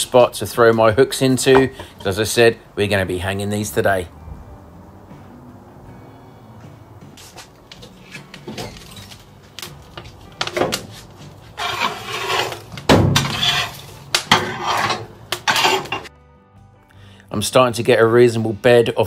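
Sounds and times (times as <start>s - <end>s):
wood chunks knocking on metal: 12.8s - 14.6s.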